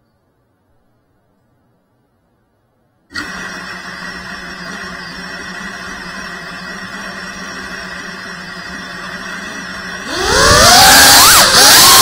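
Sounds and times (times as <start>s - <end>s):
quadcopter motors idling: 3.1s - 12.0s.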